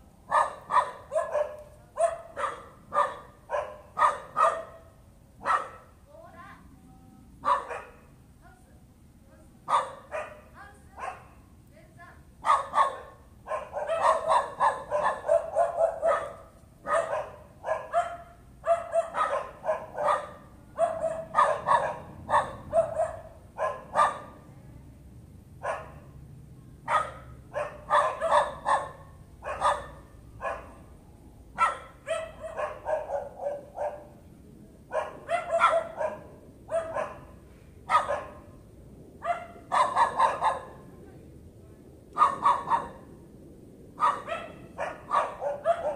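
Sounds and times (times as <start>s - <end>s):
dog barking sharply: 0.3s - 5.9s, 7.4s - 8.0s, 9.7s - 11.4s, 12.4s - 24.3s, 26.9s - 30.8s, 31.6s - 34.1s, 34.9s - 38.4s, 39.2s - 40.8s, 42.2s - 43.0s, 44.0s - 45.9s.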